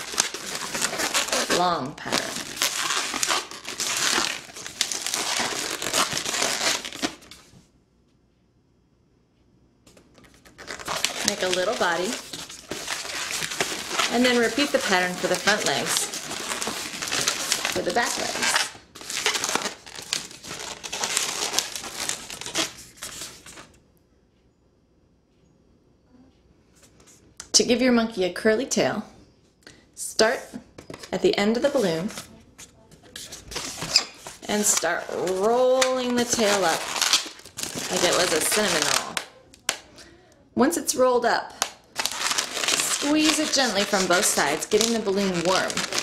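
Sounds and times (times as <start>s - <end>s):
balloon rubbing and crinkling: 0.0s - 7.5s, 10.2s - 23.6s, 33.0s - 39.2s, 42.0s - 46.0s.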